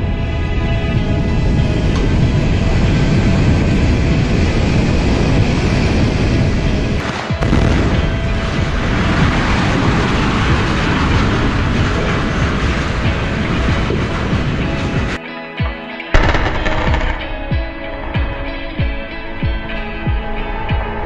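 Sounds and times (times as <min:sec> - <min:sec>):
deep demolition rumble: 0:00.0 - 0:15.2, 0:16.2 - 0:21.0
demolition charges firing: 0:07.0 - 0:15.2, 0:16.2 - 0:19.1
steel structure crashing down: 0:07.4 - 0:14.6.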